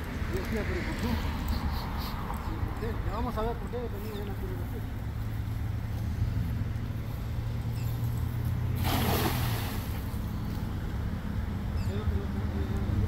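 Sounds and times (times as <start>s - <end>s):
net splashing onto water: 8.8s - 10.1s.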